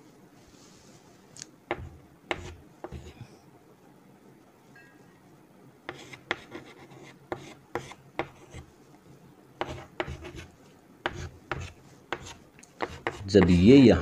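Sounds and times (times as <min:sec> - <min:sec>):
chalk scratching on chalkboard: 0:01.7 - 0:03.2, 0:05.9 - 0:08.7, 0:09.6 - 0:13.6.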